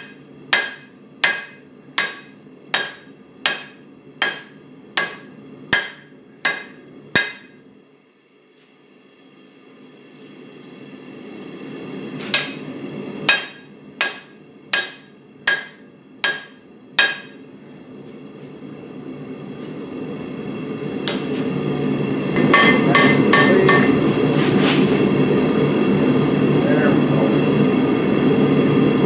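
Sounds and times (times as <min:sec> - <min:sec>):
hammer ringing on anvil: 0:00.0 - 0:07.6, 0:13.3 - 0:17.4, 0:22.4 - 0:24.0.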